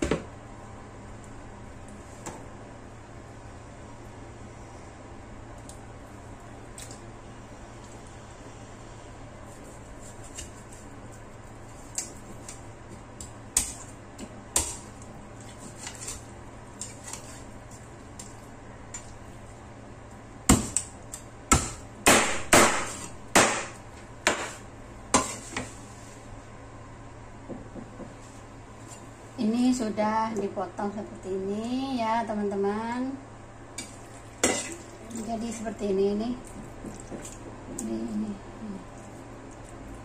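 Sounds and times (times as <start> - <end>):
cleaver chopping on cutting board: 21.5 - 23.7.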